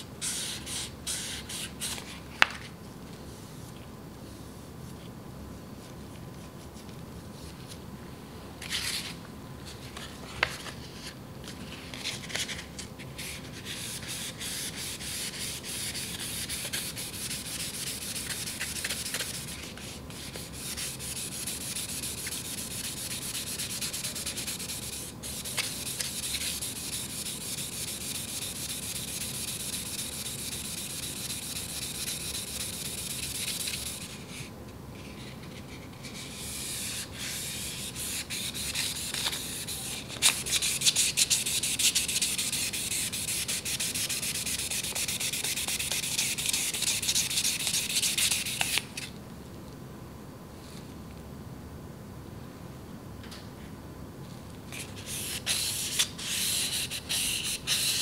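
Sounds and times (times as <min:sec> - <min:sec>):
sandpaper rubbing steel blade: 0:20.3 - 0:34.1, 0:55.2 - 0:58.0.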